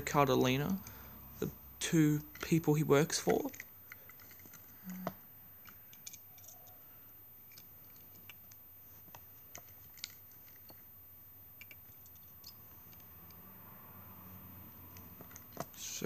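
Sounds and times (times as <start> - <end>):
toy cars clicking on carpet: 2.1 - 6.8.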